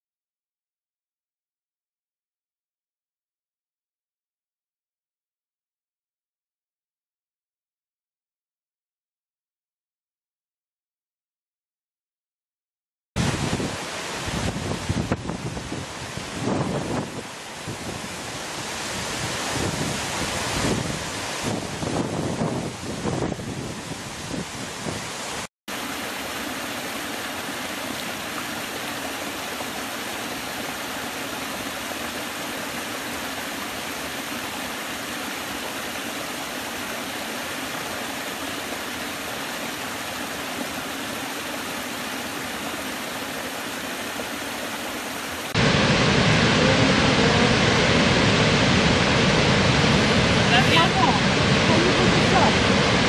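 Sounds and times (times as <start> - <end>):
large waterfall rushing: 13.2 - 53.0
stream rushing over rocks: 13.2 - 53.0.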